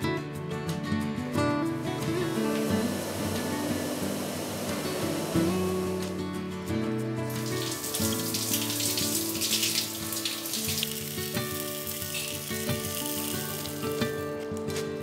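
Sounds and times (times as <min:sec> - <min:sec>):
background music: 0:00.0 - 0:15.0
steaks sizzling in frying pan: 0:07.3 - 0:14.2.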